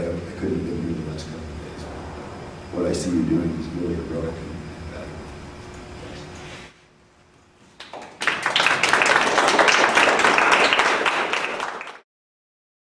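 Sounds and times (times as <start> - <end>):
audience applauding: 7.8 - 12.0.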